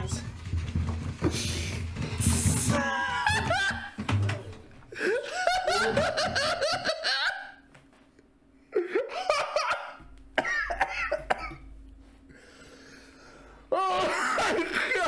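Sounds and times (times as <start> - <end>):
man laughing hard: 2.8 - 4.0, 4.9 - 7.6, 8.7 - 11.6.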